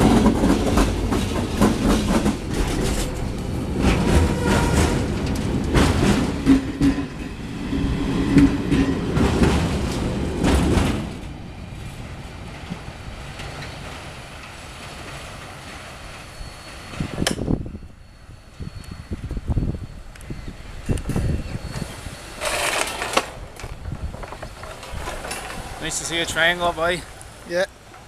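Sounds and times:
train wheels clacking over rail joints: 0.0 - 7.4, 8.2 - 11.3, 20.8 - 27.0.

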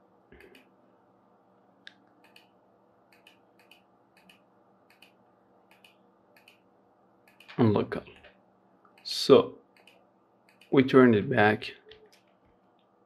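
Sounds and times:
computer mouse clicks: 0.4 - 0.7, 1.9 - 7.6, 9.7 - 10.8.

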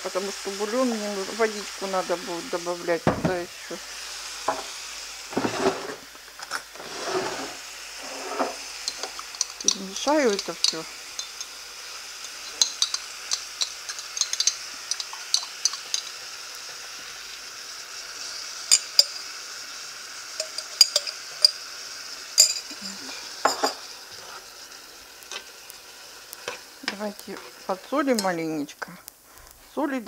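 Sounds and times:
vegetables sizzling in frying pan: 0.0 - 30.0
metal spoon scraping pan: 6.8 - 11.6, 12.2 - 16.1, 26.4 - 28.5.

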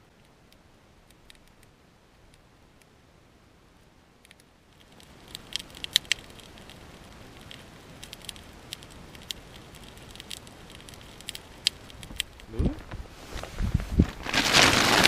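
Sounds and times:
campfire crackling and popping: 4.2 - 15.0.

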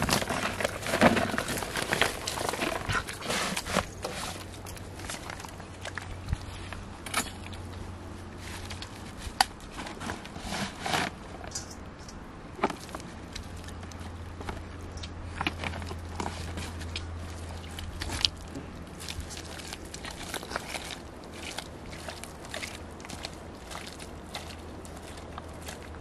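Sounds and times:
plastic sack crackling: 0.0 - 6.1, 15.3 - 26.0
footsteps through mud: 0.0 - 11.3, 12.7 - 26.0.

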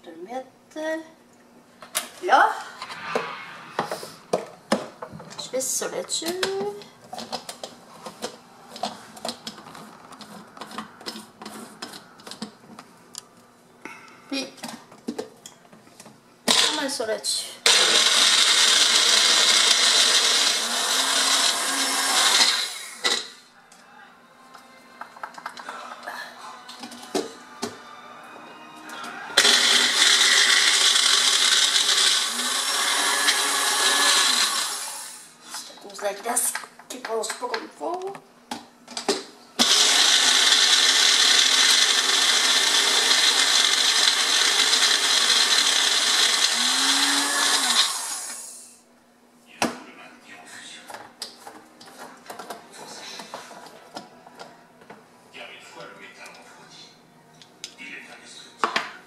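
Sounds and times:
blender motor blending ice: 16.5 - 16.8, 17.6 - 23.4, 29.3 - 35.4, 39.6 - 48.7.

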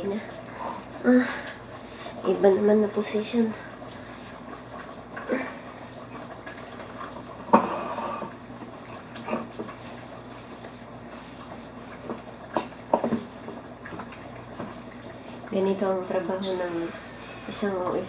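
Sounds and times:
wet sticky churning of dough: 0.0 - 18.0
wood knocking against pot: 12.0 - 13.3.

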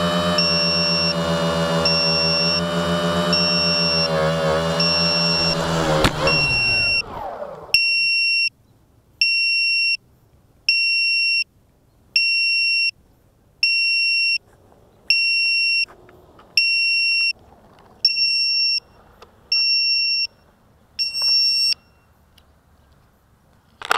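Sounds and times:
electric motors whining: 0.0 - 8.0
electronic buzzer beeps: 0.3 - 1.2, 1.8 - 7.1.

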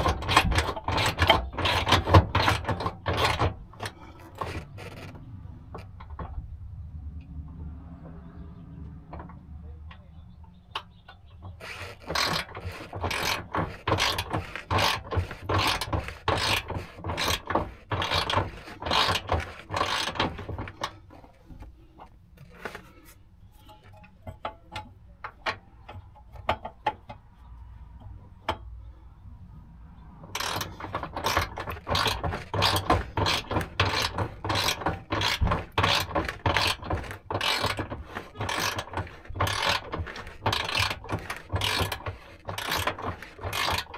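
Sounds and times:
hoist ratcheting clicks: 0.0 - 6.3, 11.5 - 21.0, 30.3 - 43.9.

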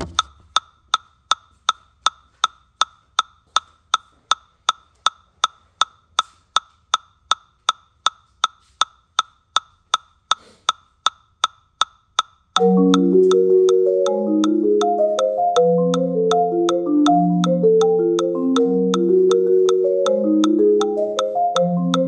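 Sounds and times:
metronome clicking: 0.0 - 22.0.

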